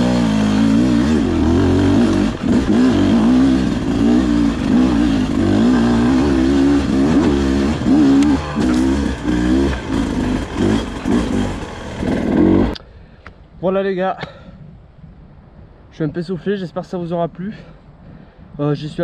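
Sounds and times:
motorcycle engine revving: 0.0 - 12.8.

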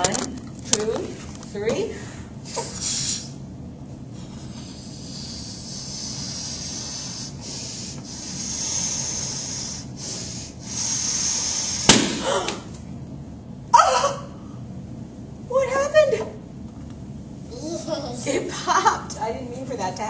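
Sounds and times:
breath blowing up balloon: 2.4 - 3.4, 4.2 - 12.6.

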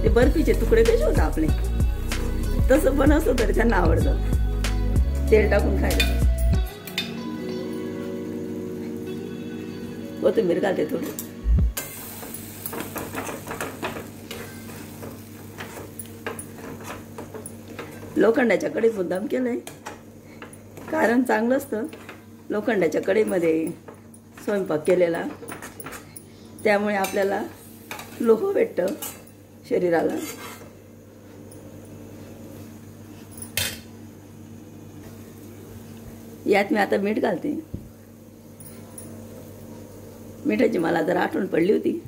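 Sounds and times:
spatula scraping iron pan: 30.0 - 30.7.

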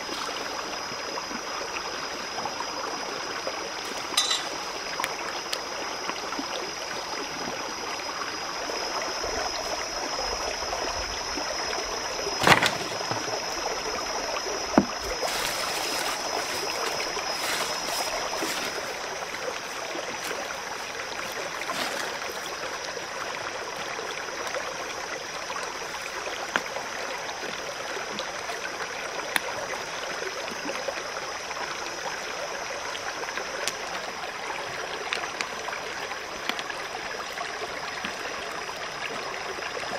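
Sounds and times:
stream running over stones: 0.0 - 39.9
high-pitched whine: 7.7 - 21.0.

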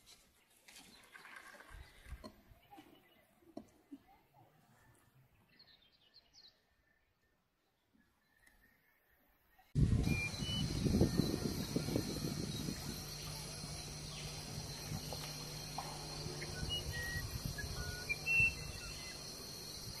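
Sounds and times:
bird chirps: 5.4 - 20.0
faint low hum: 9.2 - 20.0
wind rumbling on microphone: 9.8 - 19.0
high insect chorus: 9.8 - 20.0.

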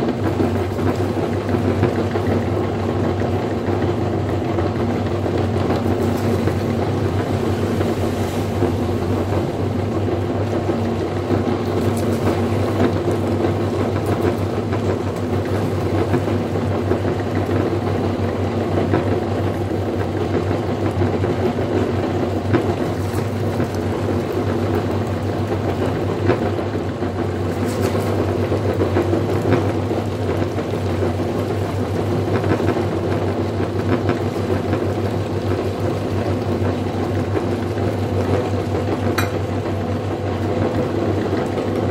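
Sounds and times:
meat grinder motor hum: 0.0 - 41.9.

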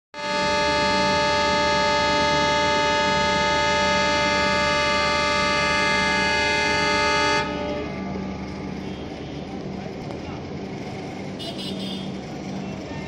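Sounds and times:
locomotive air horn blast: 0.2 - 9.5, 11.4 - 12.2.

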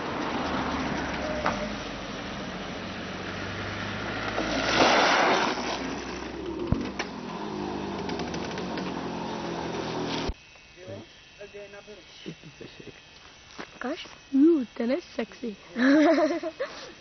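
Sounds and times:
small kart engine running: 0.0 - 11.4, 15.7 - 17.0
loud rushing pass-by: 3.1 - 10.3.

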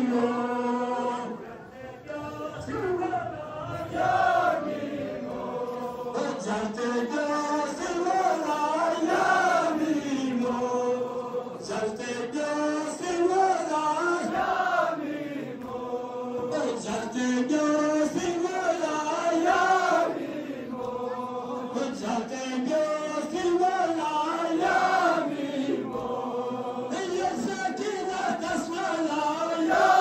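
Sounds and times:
men chanting a lament: 0.0 - 30.0.

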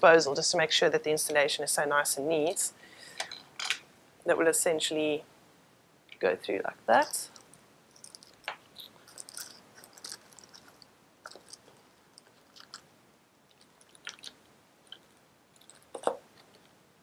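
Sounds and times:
plastic crinkling: 7.0 - 16.8.

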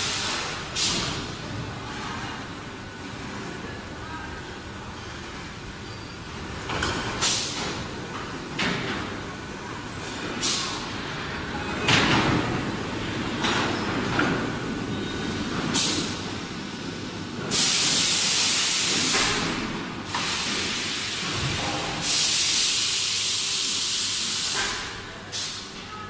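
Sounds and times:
air hissing from machine: 0.0 - 1.4, 7.2 - 7.6, 10.0 - 10.9, 15.7 - 16.2, 17.4 - 25.8
low factory hum: 0.0 - 26.0.

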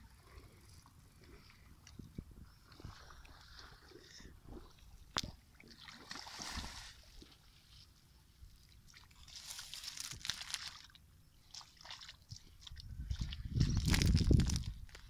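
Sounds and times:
net dragged through water and mud: 5.6 - 7.9, 8.9 - 15.0
bare feet squelching in mud: 8.9 - 15.0.

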